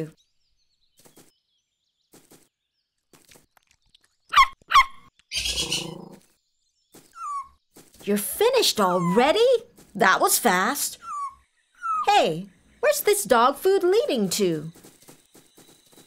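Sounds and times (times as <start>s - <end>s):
cartoon puppy yapping: 4.3s - 6.0s.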